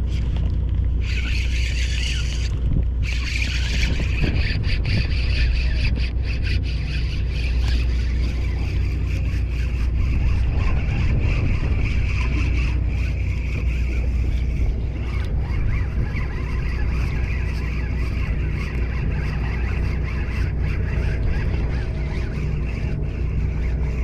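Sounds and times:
boat low rumble: 0:00.0 - 0:24.0.

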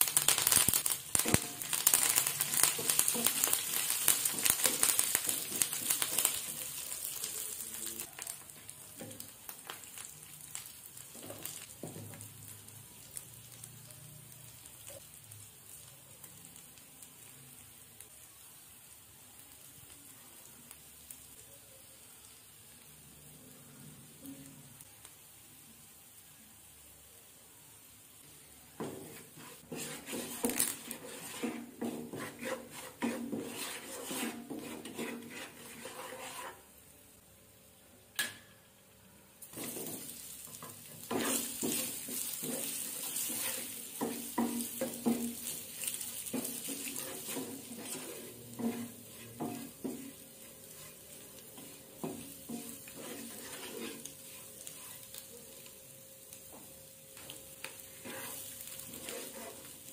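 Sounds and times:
oil sizzling: 0:00.0 - 0:59.9
wooden spatula scraping a pan: 0:01.2 - 0:06.9, 0:28.8 - 0:36.8, 0:39.5 - 0:55.3, 0:56.5 - 0:59.9.

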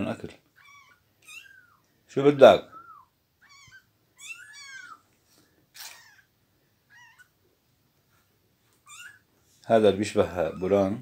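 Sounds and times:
kittens mewing faintly: 0:05.7 - 0:07.4.

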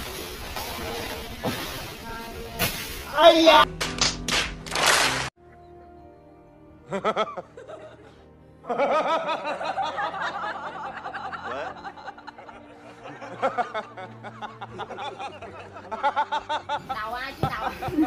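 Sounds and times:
man laughing: 0:06.9 - 0:16.8.

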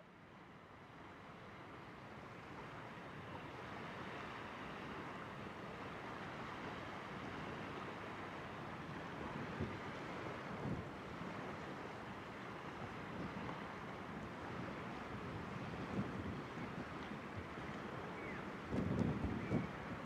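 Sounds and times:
wind noise on microphone: 0:10.4 - 0:11.4, 0:13.1 - 0:20.0
low wind buffet: 0:13.0 - 0:20.0.

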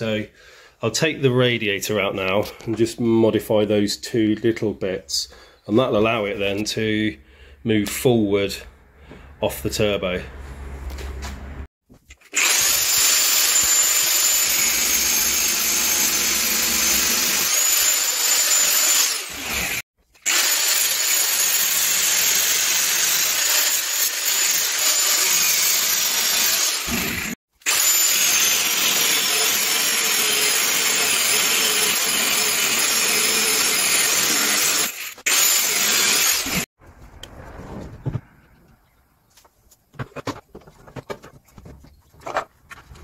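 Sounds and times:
angle grinder cutting metal: 0:12.3 - 0:36.7.

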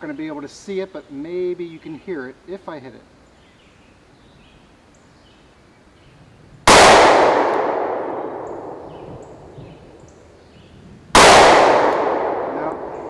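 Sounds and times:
pistol shot echoing: 0:06.7 - 0:10.0, 0:11.2 - 0:13.0.

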